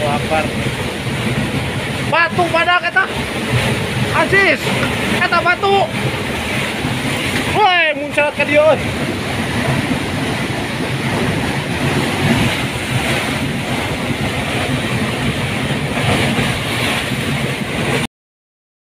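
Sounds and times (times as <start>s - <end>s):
flood water rushing down channel: 0.0s - 18.1s.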